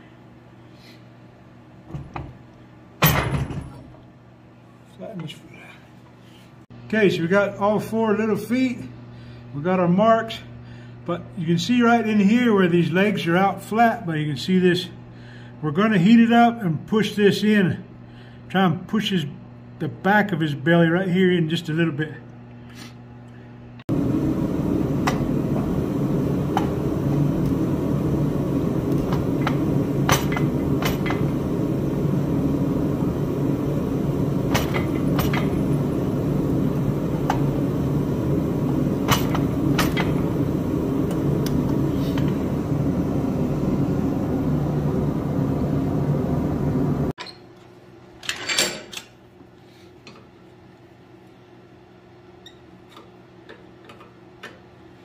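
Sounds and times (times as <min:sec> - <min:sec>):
forge roaring: 0:23.9 - 0:47.1.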